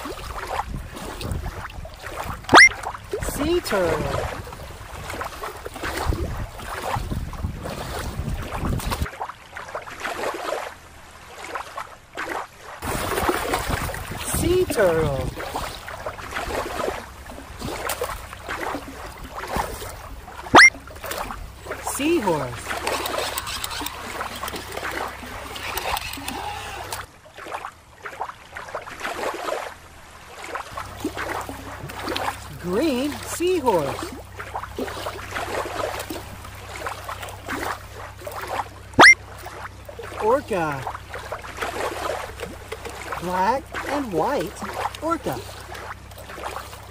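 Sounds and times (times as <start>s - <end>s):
wind buffeting microphone: 0.0s - 9.1s, 12.8s - 20.2s
water lapping at shore: 0.0s - 46.9s.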